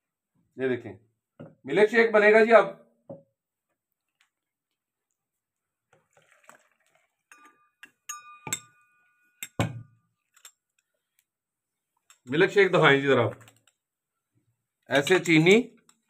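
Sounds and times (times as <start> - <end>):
struck glass ringing tone: 7.3 - 10.1
glass and metal kitchenware clinking: 7.3 - 10.6.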